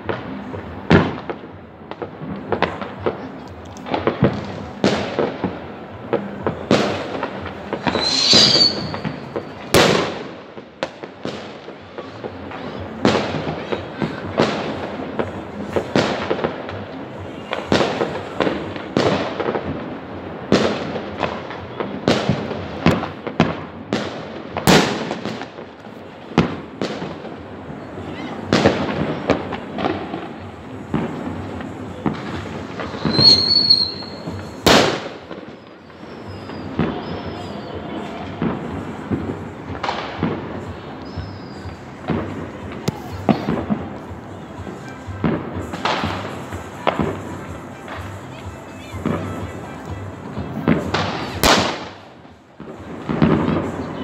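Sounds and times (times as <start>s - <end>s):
sharp firework cracks: 0.0s - 48.4s, 49.0s - 54.0s
fireworks bangs and crackles: 0.0s - 54.0s
high firework whistle: 7.8s - 9.5s, 32.8s - 38.2s, 40.6s - 41.9s.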